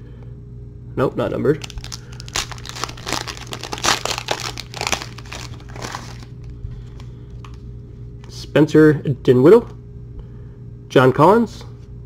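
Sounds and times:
plastic wrapper tearing: 1.5 - 6.6.

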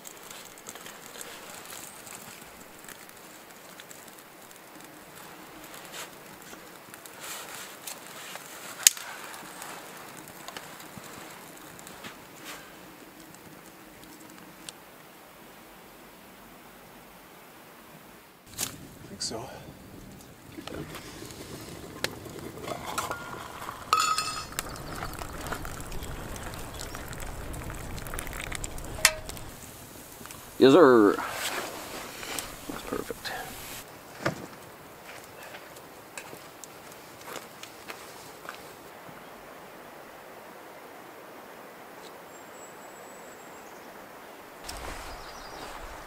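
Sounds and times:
fire crackling: 0.0 - 15.2, 18.4 - 39.0, 44.6 - 46.0
water pouring into metal mug: 21.9 - 30.8
wood snapping: 22.0 - 30.7
ringing metal clink: 23.1 - 25.1.

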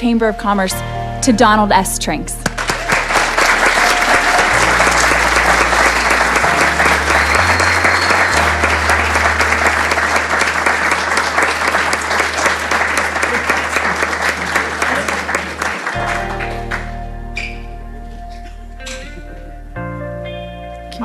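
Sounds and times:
low background music notes: 0.0 - 21.0
audience applauding: 2.4 - 17.1.

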